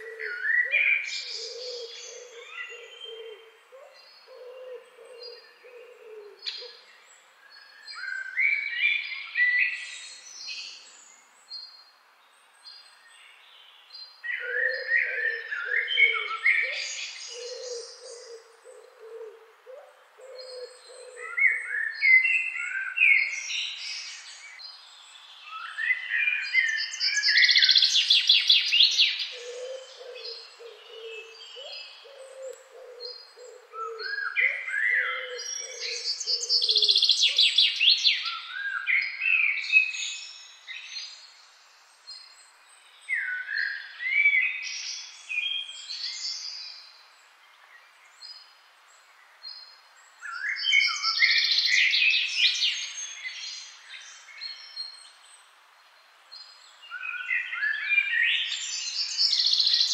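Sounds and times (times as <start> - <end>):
bird low hooting: 0.0 - 6.9, 14.4 - 21.6, 29.2 - 37.5
songbirds whistling and trilling: 0.0 - 59.9.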